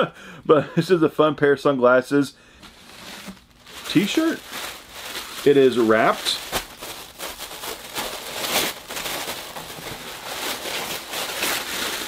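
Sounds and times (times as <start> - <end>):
plastic wrapping crinkling: 2.6 - 12.0.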